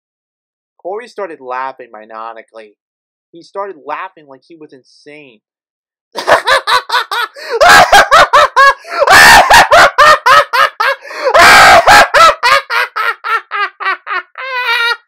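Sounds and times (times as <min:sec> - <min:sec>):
maniacal cackling laughter: 0:06.2 - 0:15.0.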